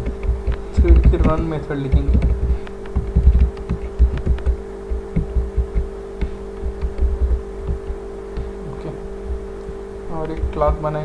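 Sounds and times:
steady electrical hum: 0.0 - 11.0
keyboard key clicks: 0.1 - 7.8.

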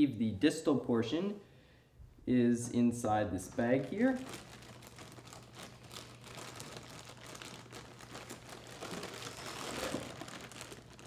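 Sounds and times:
plastic bag crinkling: 3.5 - 11.0.

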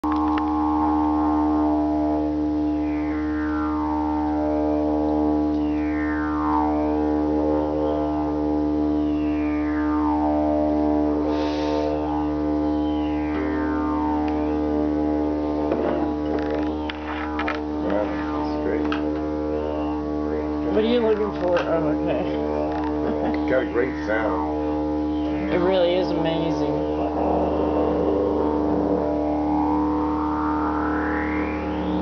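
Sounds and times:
didgeridoo drone: 0.0 - 32.0
short hiss: 11.3 - 12.0.

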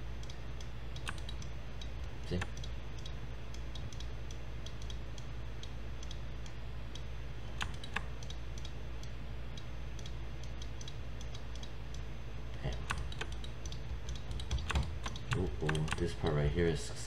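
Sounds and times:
low hum: 0.0 - 17.0
mouse and keyboard clicking: 1.0 - 1.5, 7.6 - 8.7, 12.8 - 16.3.

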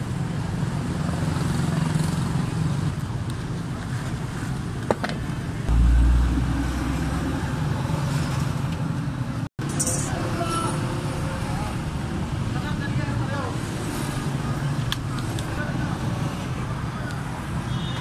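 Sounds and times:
road traffic: 0.0 - 18.0
loud low rumble: 5.7 - 8.7.

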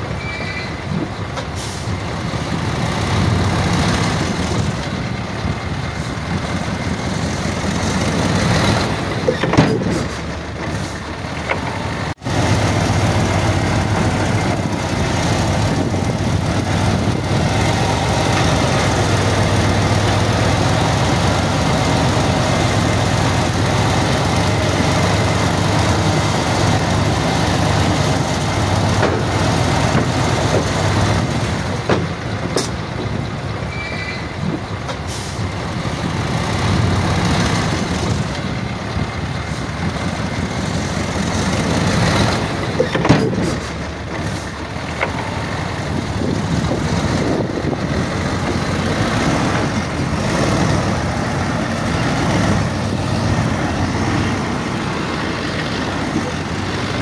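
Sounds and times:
heavy diesel engine drone: 0.0 - 57.0.

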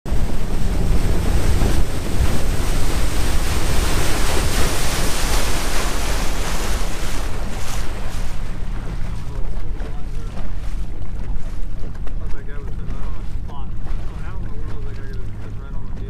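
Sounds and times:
water spraying past boat hull: 0.1 - 16.0
wind buffeting microphone: 0.1 - 16.0.

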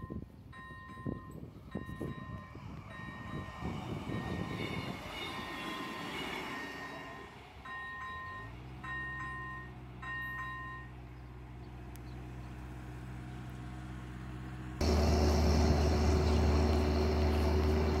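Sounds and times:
diesel railcar passing: 0.0 - 18.0
engine hum: 6.4 - 18.0
level crossing bells ringing: 6.5 - 11.0.

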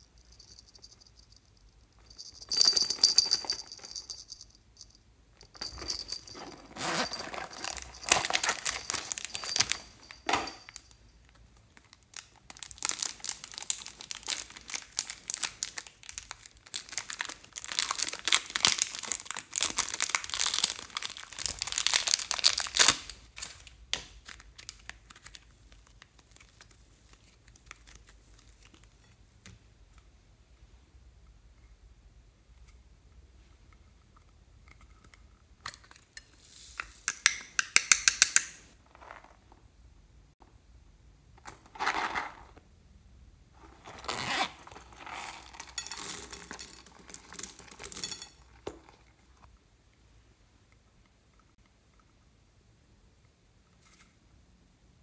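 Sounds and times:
small metal bell jingling: 0.0 - 11.2
plastic packaging crinkling and tearing: 6.7 - 9.8, 11.8 - 28.9.

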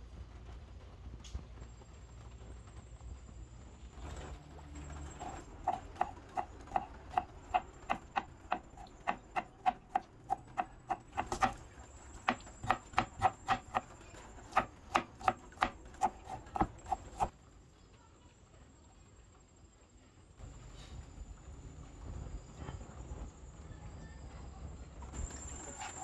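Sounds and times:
knife chopping on a cutting board: 5.2 - 11.6, 12.2 - 17.3.

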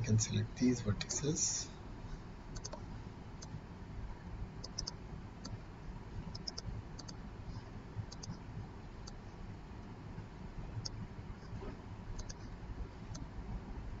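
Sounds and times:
faint low hum: 0.0 - 14.0
mouse and keyboard clicks: 2.6 - 2.8, 4.6 - 5.6, 8.1 - 8.4, 12.2 - 12.4.

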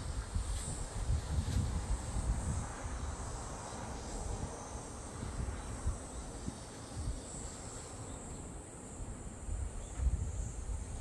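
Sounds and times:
insects trilling: 0.0 - 11.0
wind rumbling on microphone: 0.0 - 11.0.

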